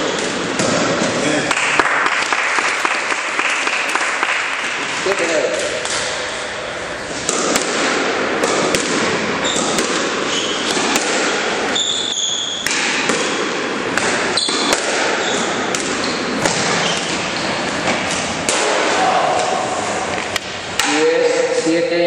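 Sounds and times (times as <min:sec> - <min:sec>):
squash ball hitting rackets and walls: 0:00.0 - 0:21.8
shoe squeaks on floor: 0:09.4 - 0:10.8, 0:11.7 - 0:12.7, 0:14.4 - 0:17.9.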